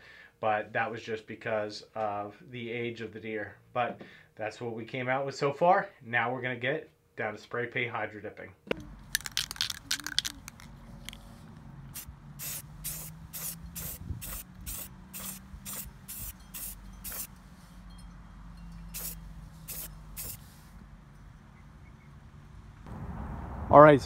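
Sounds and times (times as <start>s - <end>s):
spray paint can hissing: 9.1s - 10.7s, 11.9s - 17.4s, 18.8s - 20.8s.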